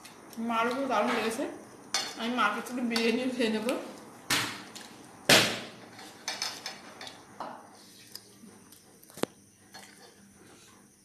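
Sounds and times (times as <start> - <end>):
tableware knocking and clinking: 5.9 - 7.6.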